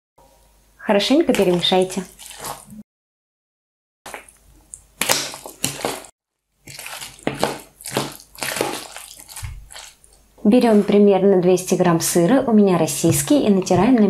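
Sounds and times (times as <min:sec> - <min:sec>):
spoon stirring wet food in bowl: 0:01.3 - 0:02.8, 0:04.1 - 0:11.1, 0:12.8 - 0:14.0.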